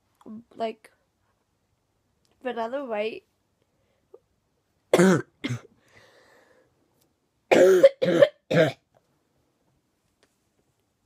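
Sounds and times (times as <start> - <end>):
girl coughing: 4.9 - 5.7, 7.5 - 8.9.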